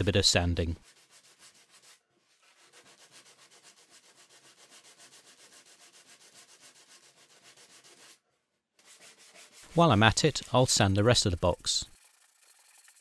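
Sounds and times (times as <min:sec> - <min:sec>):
sanding block rubbing on wood: 0:00.8 - 0:08.2, 0:08.8 - 0:10.6.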